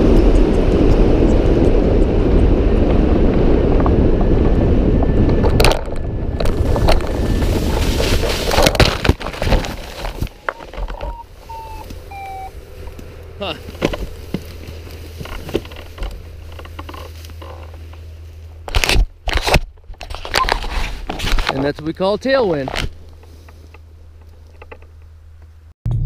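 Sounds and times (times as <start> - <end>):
wind rushing over microphone: 0.0 - 17.0.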